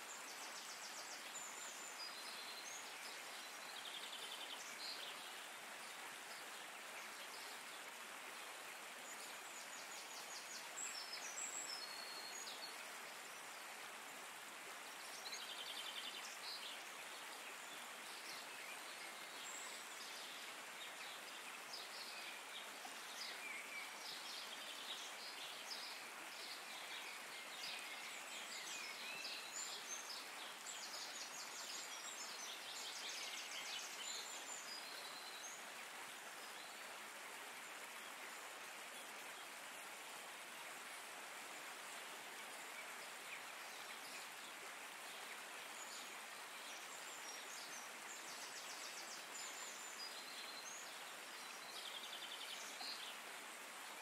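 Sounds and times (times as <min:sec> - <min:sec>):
soft water hiss: 0:00.0 - 0:54.0.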